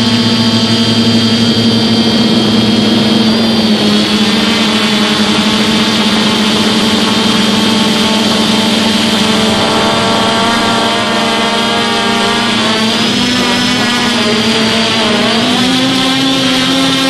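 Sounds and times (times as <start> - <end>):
drone motors buzzing: 0.0 - 17.0.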